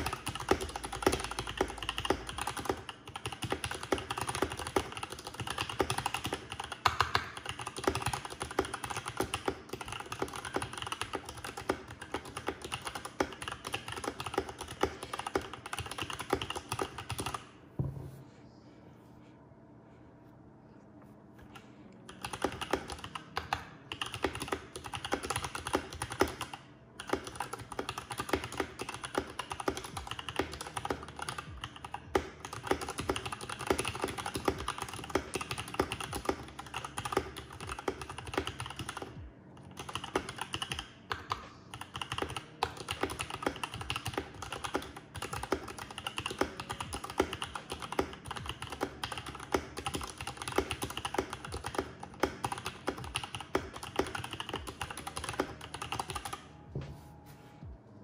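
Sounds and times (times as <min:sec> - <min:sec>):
mechanical keyboard typing: 0:00.0 - 0:17.4, 0:22.1 - 0:56.5.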